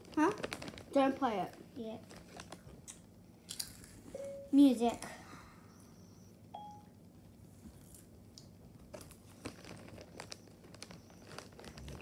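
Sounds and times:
short faint beep: 6.2 - 6.9.

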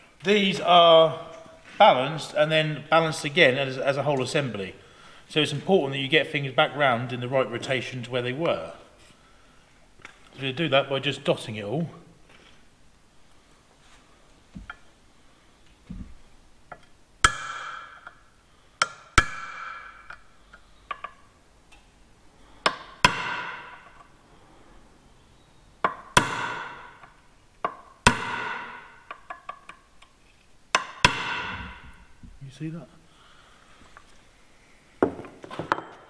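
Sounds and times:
hammer striking punch on steel: 17.2 - 18.0, 22.7 - 23.8, 25.9 - 27.0, 28.1 - 29.0, 30.8 - 31.9.

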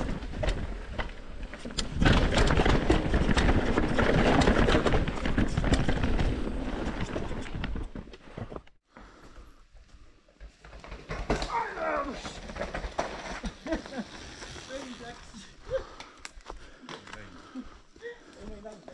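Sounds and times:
bike rattling and knocking: 0.0 - 8.1, 10.5 - 15.4
mountain bike tyres on rough trail: 0.0 - 18.9.

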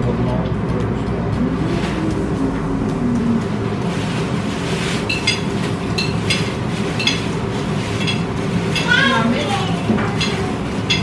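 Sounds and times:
cutlery clinking on plates: 5.1 - 7.4, 8.0 - 9.0, 10.0 - 11.0.

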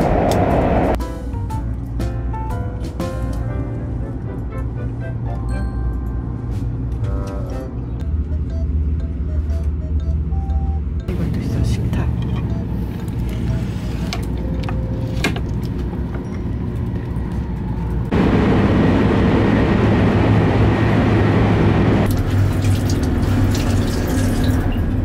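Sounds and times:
loud rushing noise: 0.0 - 1.0, 18.1 - 22.1
train interior rumble: 0.0 - 25.0.

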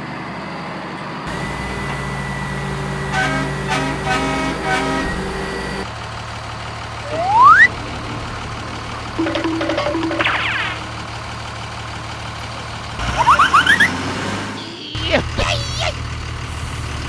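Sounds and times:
truck engine running: 1.1 - 17.0
horn tooting: 2.8 - 5.9, 9.2 - 11.1
loud rising whistle: 7.0 - 7.7.

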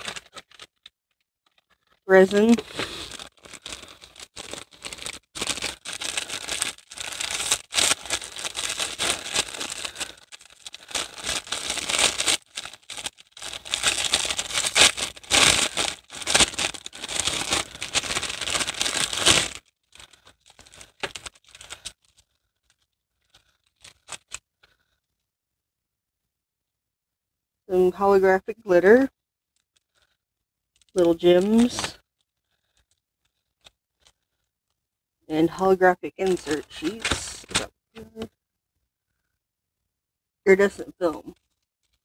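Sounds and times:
plastic packaging crinkling: 0.0 - 24.8, 29.5 - 34.5, 36.2 - 38.3, 41.2 - 42.0.

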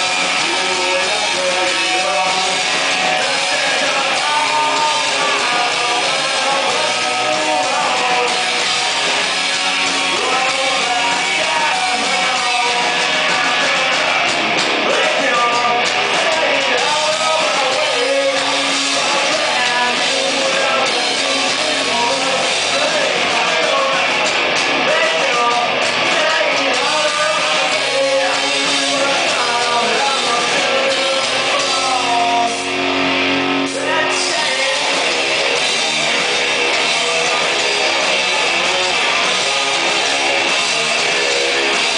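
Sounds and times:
man singing: 0.0 - 32.8, 33.7 - 41.9
bass guitar: 0.0 - 41.9
electric guitar: 0.0 - 41.9.

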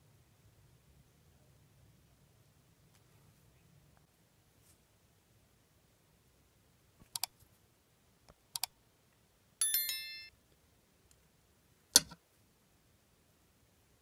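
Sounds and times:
bright bell chime: 9.6 - 10.3.

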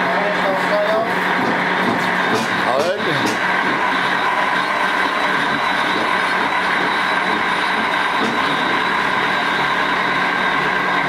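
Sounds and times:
lathe mechanical whine: 0.0 - 11.0.

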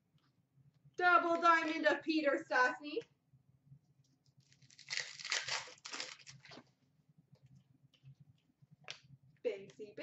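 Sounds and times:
card pack wrapper tearing: 4.4 - 6.6.

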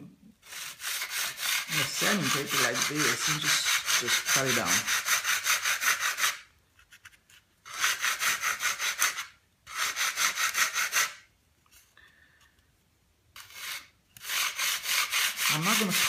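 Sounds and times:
sandpaper rubbing on wood: 0.4 - 6.5, 7.7 - 11.3, 13.4 - 16.0.

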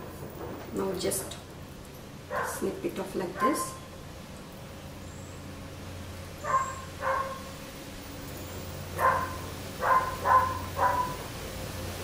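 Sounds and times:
small dog barking: 2.3 - 2.6, 6.4 - 7.5, 9.0 - 11.3.

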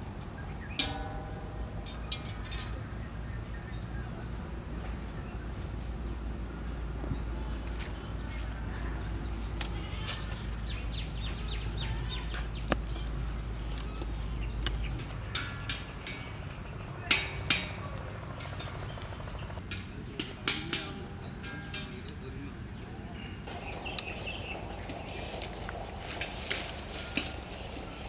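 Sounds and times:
bamboo sticks clicking and tapping: 9.4 - 10.6, 12.2 - 18.6, 19.7 - 22.2, 23.5 - 28.0.

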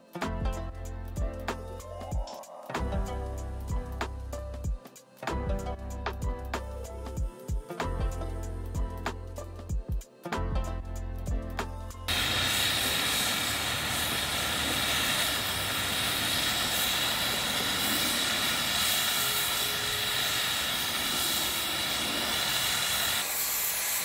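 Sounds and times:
cutting torch hissing: 12.1 - 24.0.

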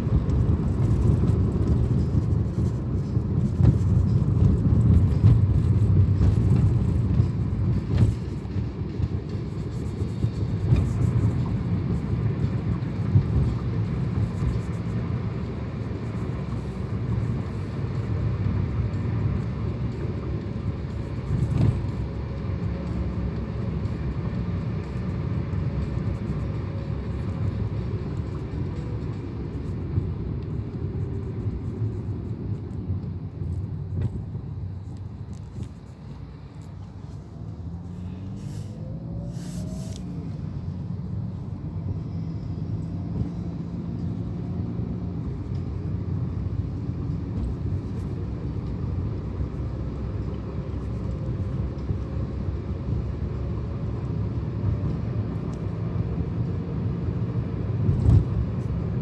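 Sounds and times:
car cabin road noise: 0.0 - 59.0.

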